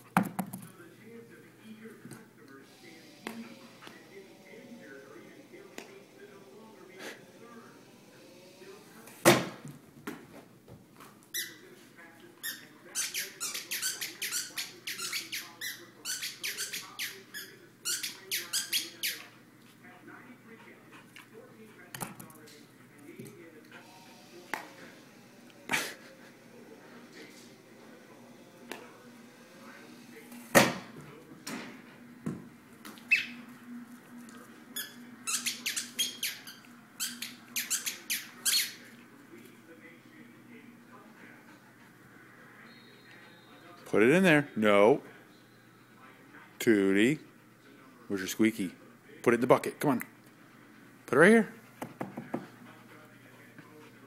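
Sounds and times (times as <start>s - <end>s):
squeaky toy squeaking: 11.3s - 11.6s, 12.4s - 19.3s, 34.8s - 38.8s.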